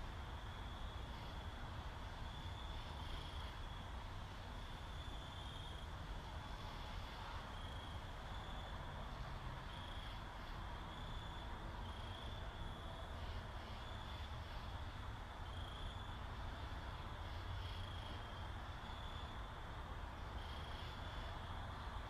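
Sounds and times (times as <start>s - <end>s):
cricket chirping: 0.0s - 22.0s
steady low hum: 0.0s - 22.0s.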